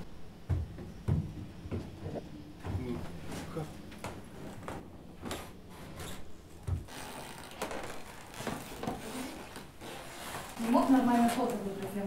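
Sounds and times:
clothing rustling: 3.1 - 12.0.

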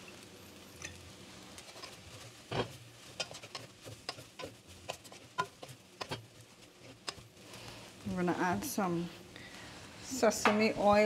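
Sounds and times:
wooden spoon scraping a pot: 1.6 - 8.0.

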